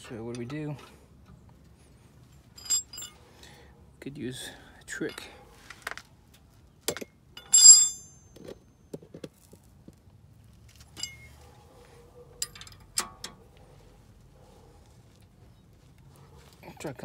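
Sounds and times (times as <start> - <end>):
metal wrenches clinking: 2.5 - 3.3, 6.9 - 8.6, 10.9 - 11.4, 12.4 - 13.4.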